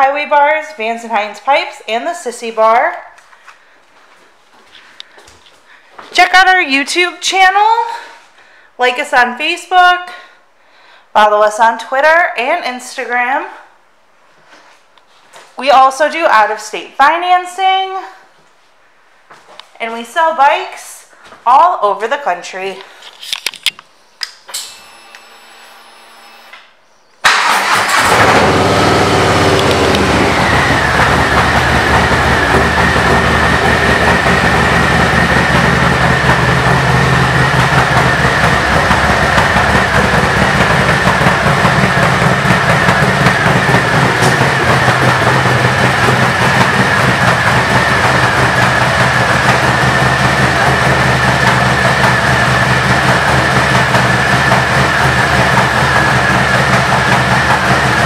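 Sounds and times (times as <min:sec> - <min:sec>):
motorcycle engine starting and idling: 0:27.2 - 0:58.0.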